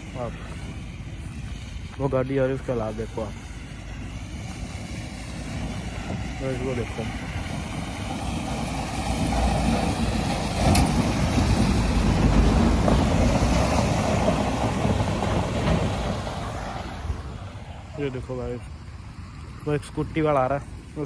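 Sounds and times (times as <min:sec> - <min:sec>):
truck engine running: 0:00.0 - 0:21.0
tyres splashing through water: 0:06.2 - 0:17.8.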